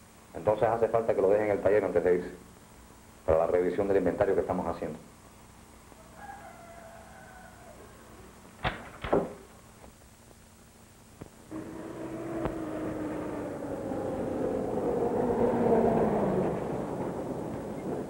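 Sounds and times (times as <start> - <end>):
pickup truck engine passing: 11.5 - 18.0.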